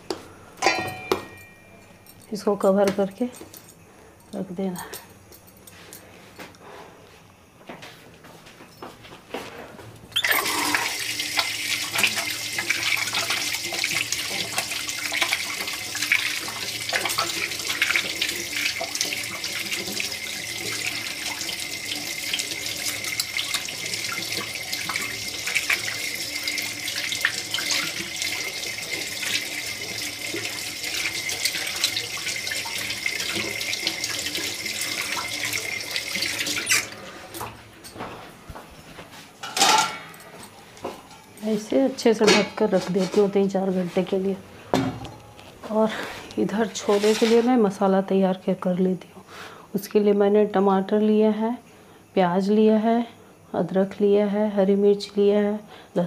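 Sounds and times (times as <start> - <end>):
tap running into sink: 10.1 - 38.6.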